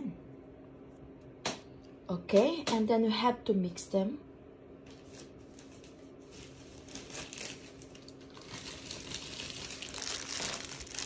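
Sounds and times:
plastic glove crinkling: 4.8s - 11.0s.

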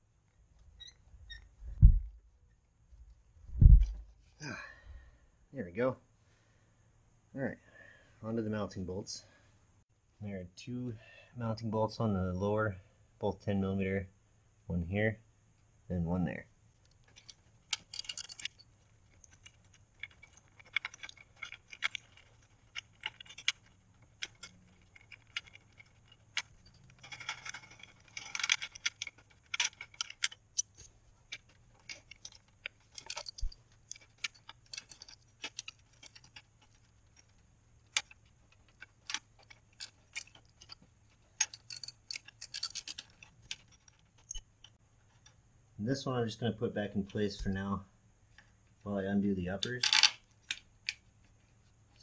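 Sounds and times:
metal tool clinks: 17.2s - 18.8s, 31.4s - 36.4s, 38.0s - 44.4s.

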